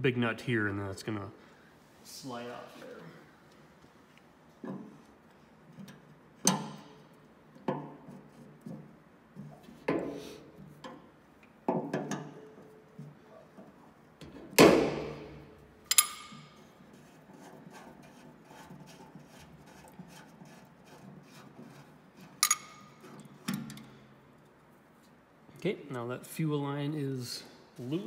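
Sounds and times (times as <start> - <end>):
wrench clanking on metal fitting: 15.9 - 16.6, 22.4 - 23.9.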